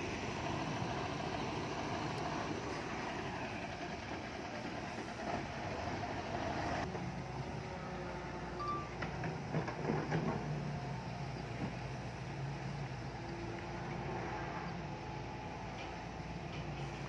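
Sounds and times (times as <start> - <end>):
heavy diesel machinery running: 0.0 - 17.0
knocks and clanks: 8.9 - 10.6.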